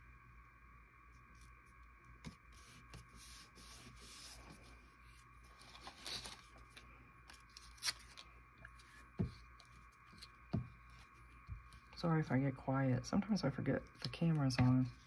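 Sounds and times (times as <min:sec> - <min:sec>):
faint steady hum: 0:00.0 - 0:15.0
paper rustling and sliding: 0:02.2 - 0:11.2.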